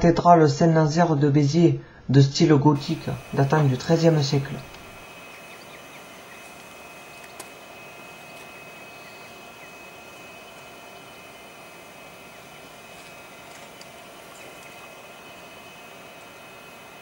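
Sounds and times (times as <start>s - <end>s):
railway station background hum: 2.8s - 17.0s.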